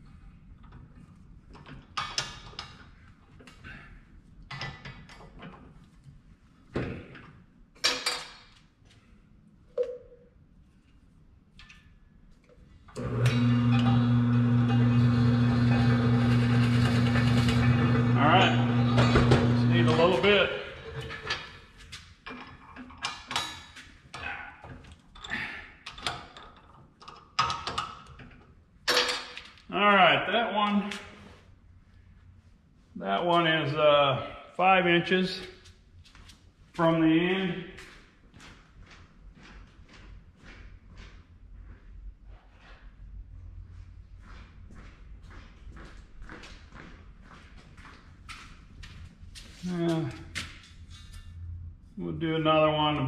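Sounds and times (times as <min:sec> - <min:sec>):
metal pipe clinking and knocking: 0:09.8 - 0:10.2
metal clanks and knocks: 0:20.7 - 0:21.7.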